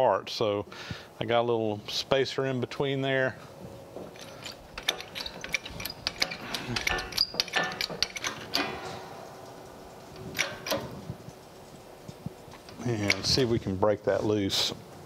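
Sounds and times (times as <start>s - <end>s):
metal parts clinking and rattling: 4.0s - 9.1s, 10.0s - 11.4s, 12.6s - 13.5s.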